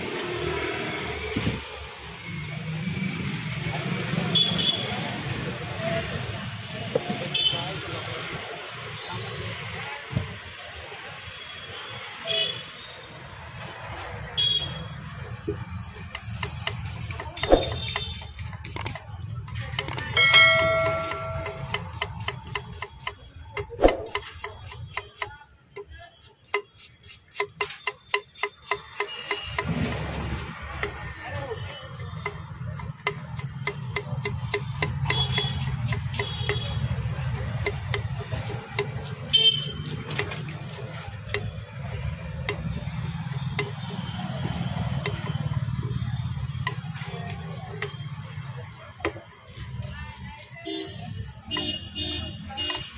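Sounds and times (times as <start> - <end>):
knife chopping on wooden board: 16.5 - 18.1, 21.0 - 25.3
short pitched tone: 19.9 - 21.8
low street rumble: 29.1 - 52.9.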